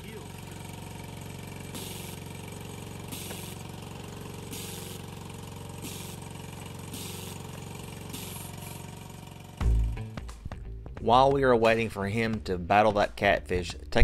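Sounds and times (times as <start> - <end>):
small engine running: 0.0 - 12.4
hiss: 1.7 - 2.2, 3.1 - 3.6, 4.4 - 5.0, 5.8 - 8.8.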